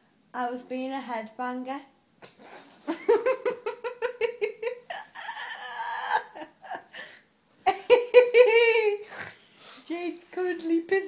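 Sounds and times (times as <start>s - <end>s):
girl laughing: 2.9s - 9.2s.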